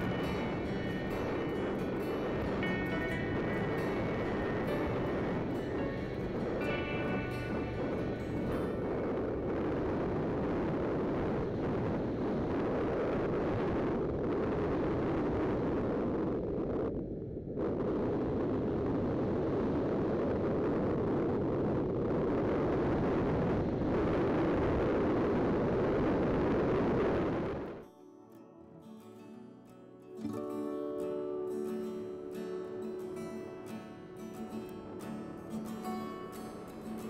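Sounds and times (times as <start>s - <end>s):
wind buffeting microphone: 0.0s - 27.8s.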